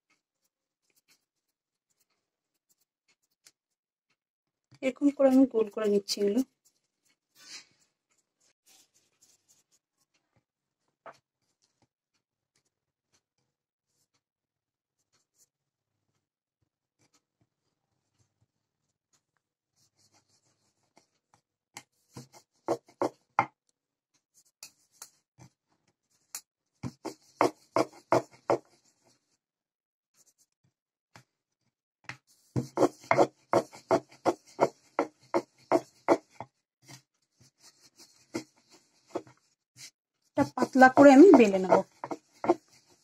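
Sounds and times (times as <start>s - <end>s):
rolling pin on wooden board: 22.1s - 23.6s, 26.8s - 29.1s, 32.1s - 39.5s, 40.4s - 43.0s.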